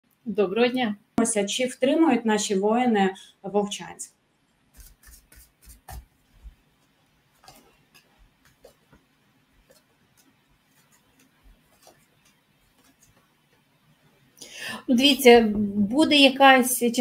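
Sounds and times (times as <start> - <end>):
cards being shuffled: 4.8 - 6.6, 7.3 - 13.3.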